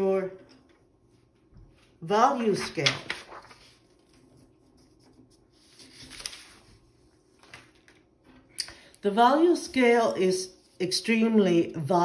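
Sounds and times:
paper sliding and rustling: 1.8s - 8.0s.

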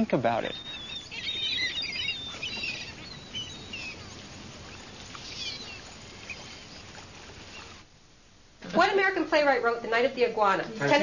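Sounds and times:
birds chirping: 0.0s - 8.1s
faint steady hiss: 0.0s - 11.0s.

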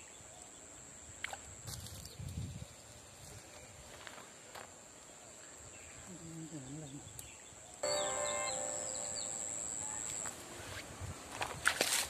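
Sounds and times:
high-pitched whine: 7.8s - 10.3s.

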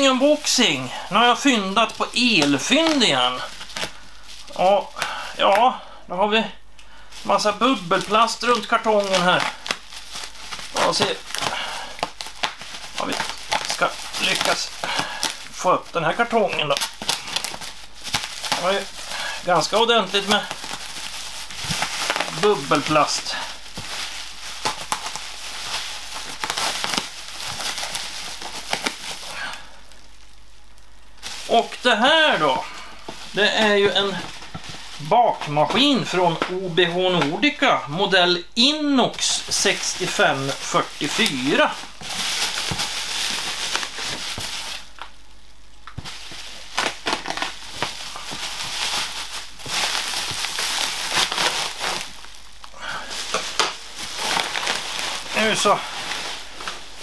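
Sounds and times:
bubble wrap crinkling and crackling: 0.0s - 57.0s.

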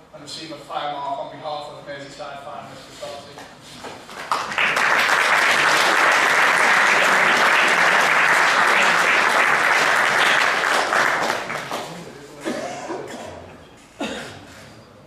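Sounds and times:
crowd applauding: 4.0s - 12.1s.

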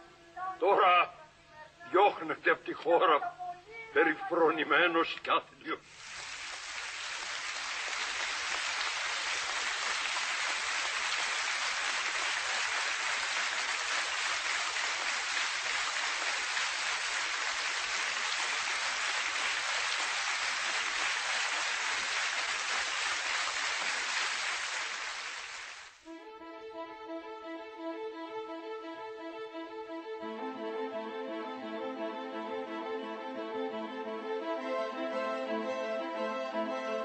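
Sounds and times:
audience applauding: 6.0s - 26.0s.

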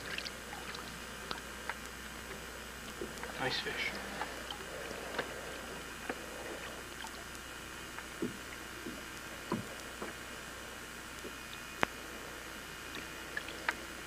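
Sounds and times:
water sloshing: 0.0s - 10.3s.

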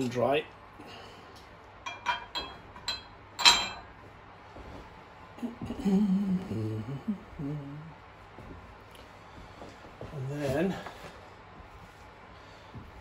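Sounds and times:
ringing metal clink: 1.9s - 3.9s
man humming: 5.4s - 8.0s.

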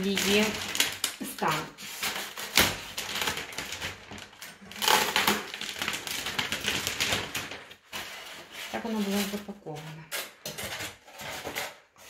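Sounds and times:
plastic film being cut with knife: 0.0s - 9.5s
plastic film crinkling and rustling: 0.0s - 12.0s.

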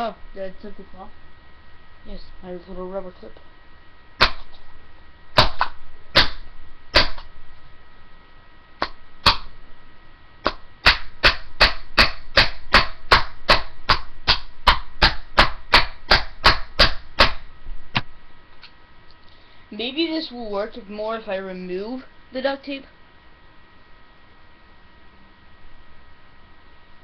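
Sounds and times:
hammer striking plastic: 5.4s - 6.4s, 8.8s - 9.5s, 10.4s - 17.4s.

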